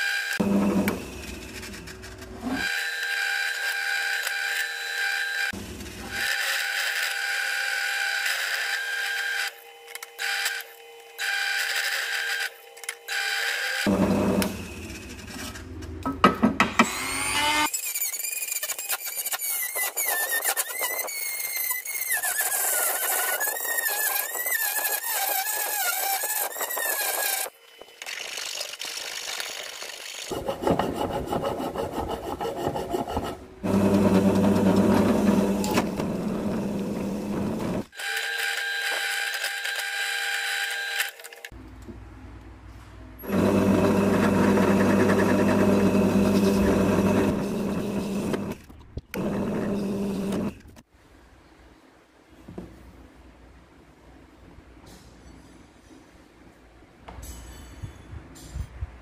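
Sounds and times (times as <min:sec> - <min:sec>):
tool scraping material: 0:30.3 - 0:37.9, 0:43.2 - 0:48.6
small motor humming: 0:43.2 - 0:48.6, 0:49.2 - 0:50.6.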